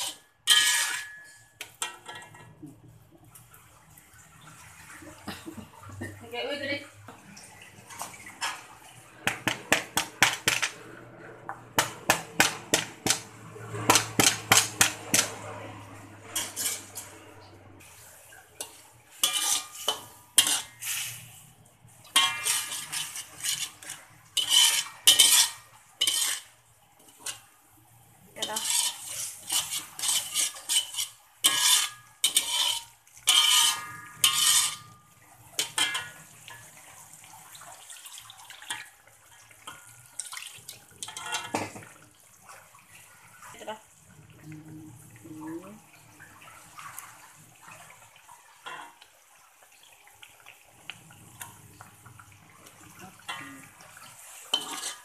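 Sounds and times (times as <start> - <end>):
metal turner scraping wok: 0.0 - 2.4, 9.3 - 17.6, 18.6 - 21.5, 22.1 - 27.5, 28.4 - 35.0, 35.6 - 36.6, 41.0 - 41.7, 53.1 - 55.0
light sizzle: 0.0 - 55.0.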